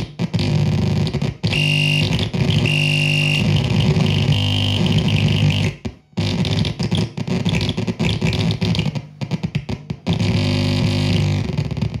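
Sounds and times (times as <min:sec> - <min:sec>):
buzzy electronic synth drone: 0:00.0 - 0:12.0.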